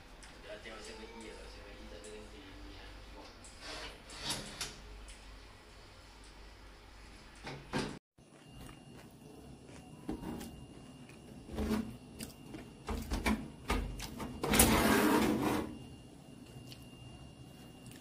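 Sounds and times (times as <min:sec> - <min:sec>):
loud scraping noise: 0:14.5 - 0:15.8.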